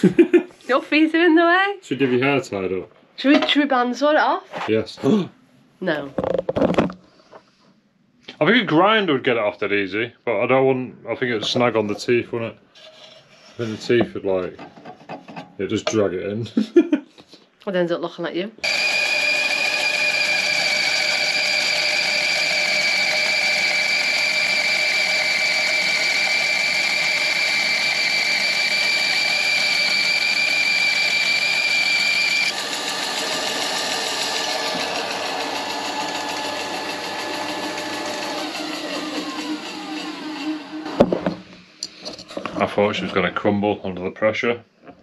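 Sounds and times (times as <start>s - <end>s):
bandsaw cutting timber: 18.6s - 41.1s.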